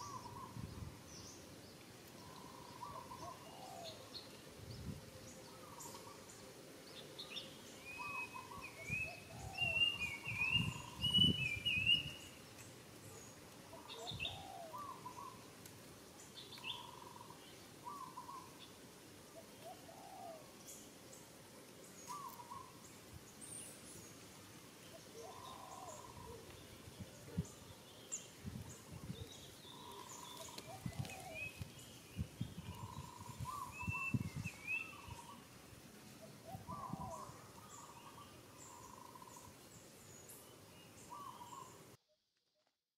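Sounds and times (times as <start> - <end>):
bird calling: 0.0 - 0.6, 2.2 - 4.2, 7.2 - 15.5, 16.4 - 20.6, 22.0 - 22.8, 24.9 - 28.2, 29.0 - 32.0, 32.6 - 35.5, 36.2 - 39.6, 40.8 - 41.9.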